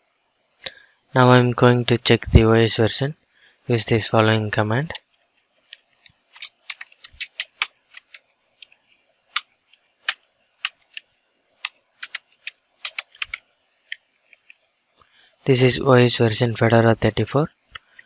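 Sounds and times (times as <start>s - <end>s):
keyboard typing: 5.7s - 14.6s
enter key presses: 6.4s - 8.2s, 11.6s - 13.4s.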